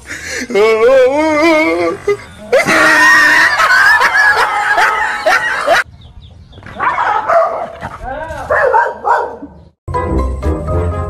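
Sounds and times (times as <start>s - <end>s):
high-pitched screaming: 0.5s - 5.3s
wavering wail: 0.5s - 5.8s.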